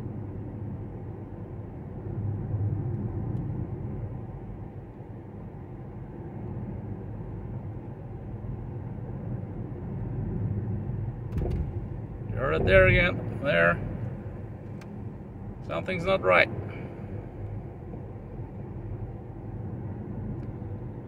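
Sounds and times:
in-cabin road and tyre noise: 0:00.0 - 0:21.0.

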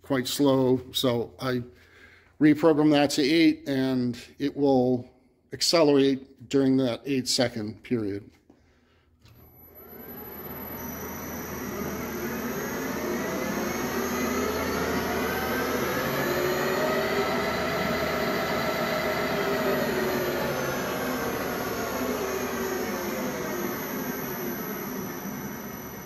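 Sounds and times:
lathe motor whirring: 0:09.3 - 0:26.0
thin high whine: 0:09.4 - 0:26.0.

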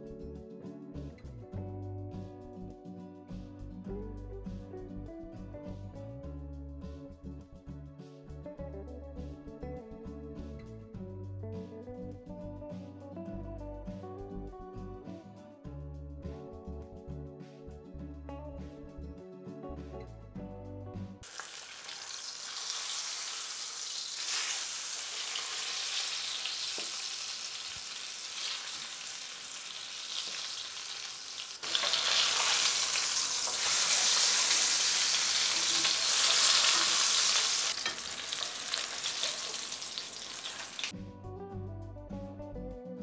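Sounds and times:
music: 0:00.0 - 0:23.0, 0:24.2 - 0:29.8, 0:31.6 - 0:43.0
fish sizzling in hot oil: 0:21.2 - 0:40.9.

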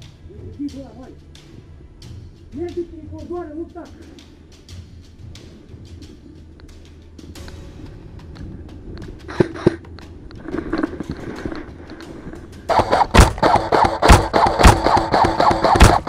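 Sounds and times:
footsteps crunching in snow: 0:00.5 - 0:13.6
sharp clicks: 0:11.9 - 0:16.0
music with heavy beats: 0:12.1 - 0:16.0.

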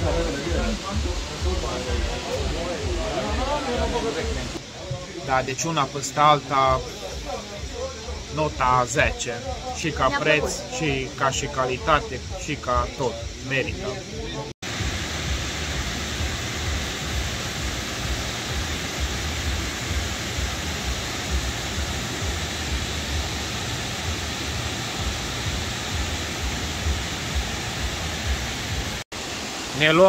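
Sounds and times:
waterfall rushing: 0:14.6 - 0:30.0.

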